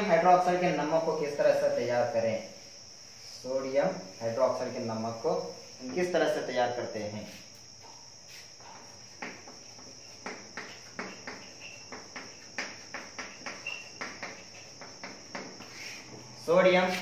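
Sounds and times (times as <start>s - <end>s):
chalk tapping and scraping: 7.2s - 17.0s.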